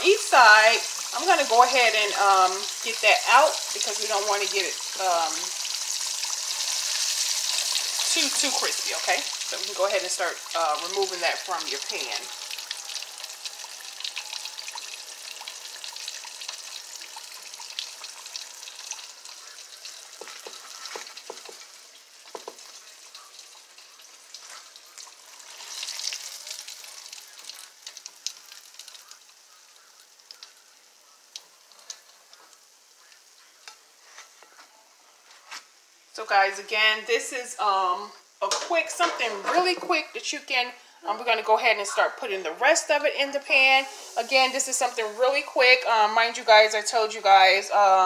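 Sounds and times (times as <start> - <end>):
oil popping: 0.0 - 33.8
fish frying in hot oil: 0.0 - 34.6, 42.2 - 48.0.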